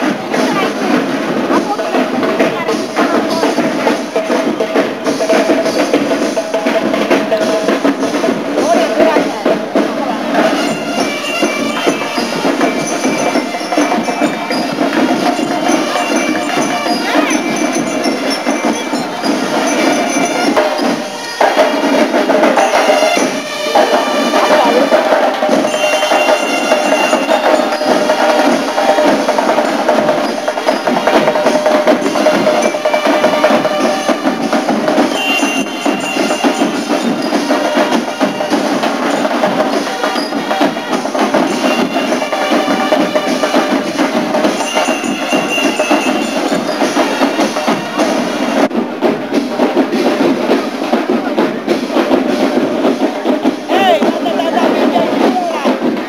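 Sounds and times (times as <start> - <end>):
cymbals crashing: 0.0 - 56.0
snare and bass drums: 0.0 - 56.0
bell lyres ringing: 10.3 - 48.7.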